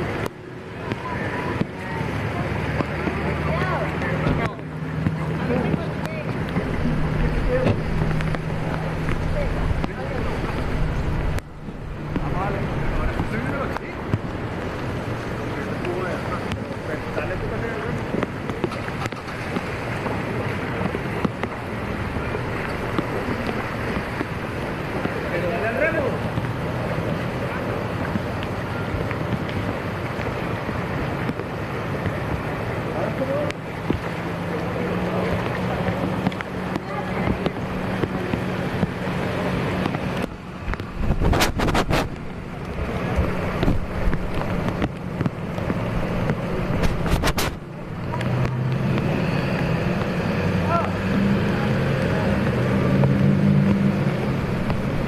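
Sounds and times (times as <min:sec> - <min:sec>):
low motor hum: 0:00.0 - 0:55.0
wind buffeting microphone: 0:00.0 - 0:55.0
wind noise on microphone: 0:35.3 - 0:49.3.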